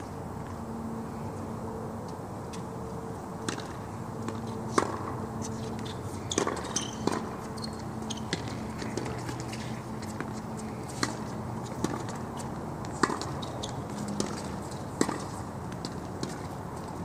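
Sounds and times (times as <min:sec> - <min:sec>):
racket striking tennis ball: 0:03.4 - 0:07.4, 0:12.9 - 0:16.4
tennis ball bouncing: 0:03.4 - 0:16.5.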